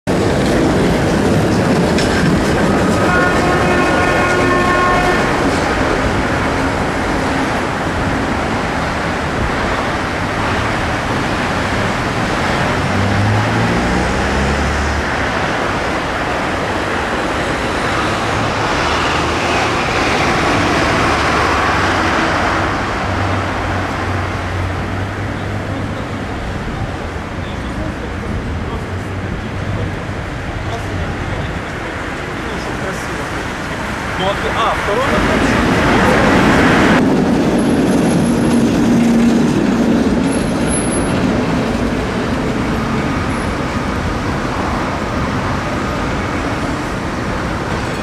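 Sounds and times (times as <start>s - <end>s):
passing road traffic: 0.1s - 48.0s
tram wheels rumbling: 0.1s - 48.0s
held horn tone: 2.7s - 5.6s.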